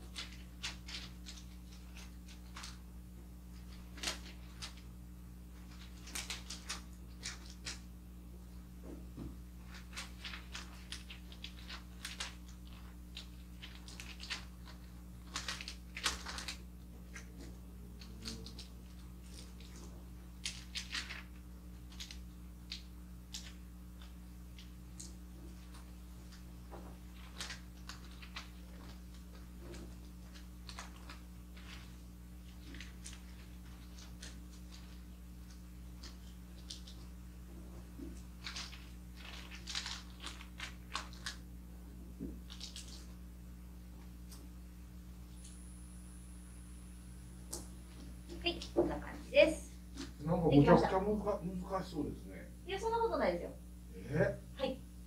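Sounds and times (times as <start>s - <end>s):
wrapping paper crinkling: 0.0s - 8.1s, 9.4s - 43.3s
faint low hum: 0.0s - 55.0s.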